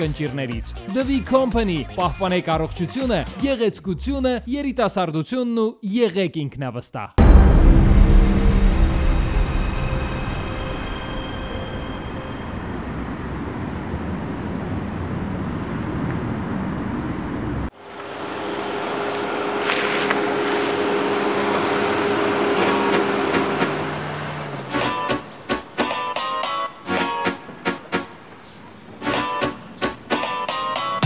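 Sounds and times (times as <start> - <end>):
vehicle humming: 8.0 - 26.3
road traffic rumble: 8.9 - 31.0.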